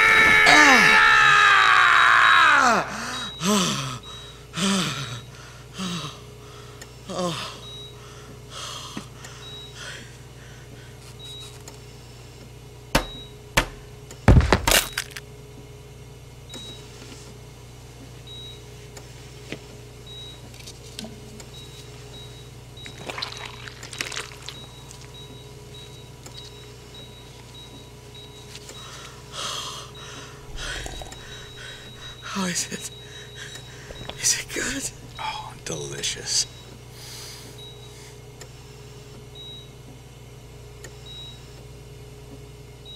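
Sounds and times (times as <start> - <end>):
low steady hum: 0.0 - 42.9
faint beeping: 30.0 - 36.8.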